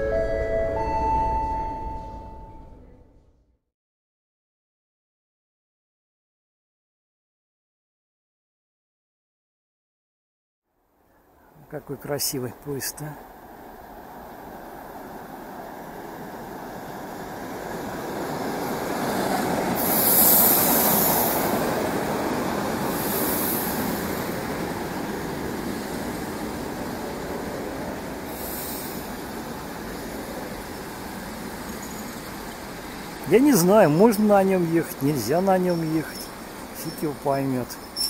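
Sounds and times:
train rumbling and braking: 0.0 - 3.5, 12.0 - 38.0
short high hisses: 19.8 - 21.5, 22.9 - 24.1, 28.3 - 29.2.

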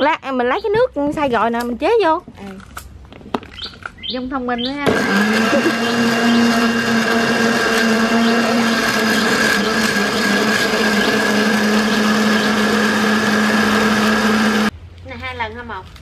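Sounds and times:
electric blender running: 4.8 - 14.7.

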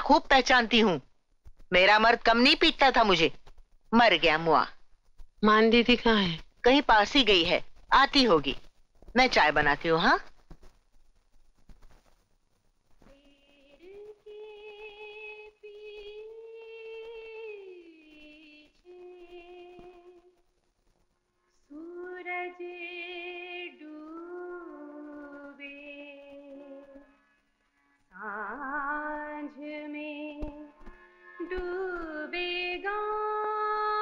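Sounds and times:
woman singing wordless melody: 13.1 - 20.4, 21.7 - 27.1, 28.2 - 34.0.

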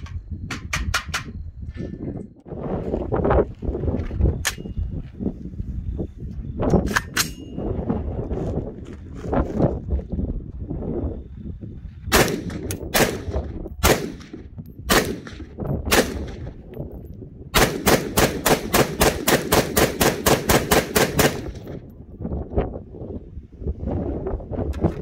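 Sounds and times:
gunshots echoing: 12.1 - 16.5, 17.6 - 21.8.

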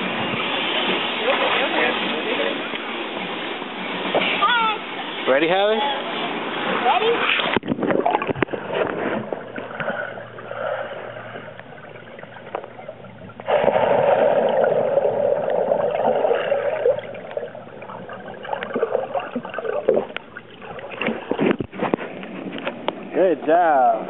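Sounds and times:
bubbles and churning water: 0.0 - 24.0
muffled underwater sloshing: 0.0 - 24.0
small clicks underwater: 19.8 - 23.0.

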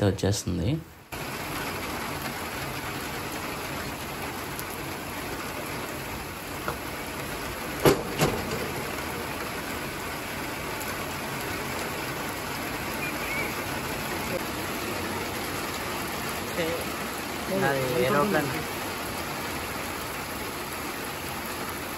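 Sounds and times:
rain falling: 0.0 - 21.9
sharp knocks: 7.8 - 9.2.

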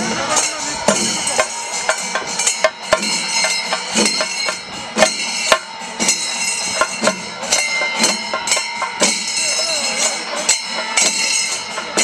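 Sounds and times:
hand cymbals clashing: 0.0 - 12.0
stick-beaten drums: 0.0 - 12.0.

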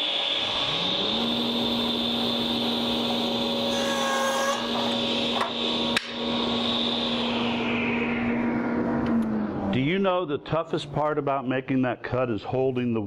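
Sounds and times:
dust collector hissing: 0.0 - 8.9
table saw running: 0.0 - 10.1
saw blade cutting wood: 3.6 - 6.2.

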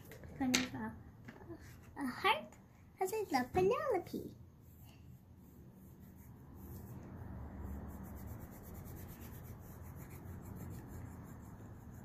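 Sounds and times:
crayon scribbling on paper: 4.6 - 12.0.

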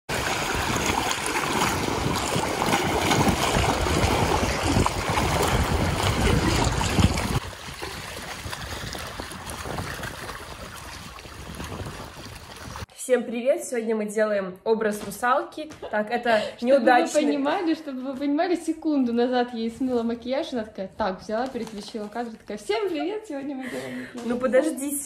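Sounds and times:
waves splashing against rocks: 0.1 - 12.9
wind buffeting microphone: 0.3 - 12.9.

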